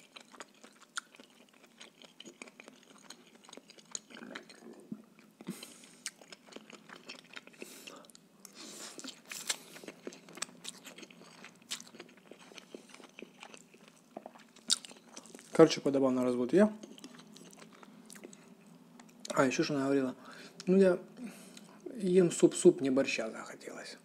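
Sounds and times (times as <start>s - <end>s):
wet chewing: 0.0s - 15.6s, 16.8s - 19.2s.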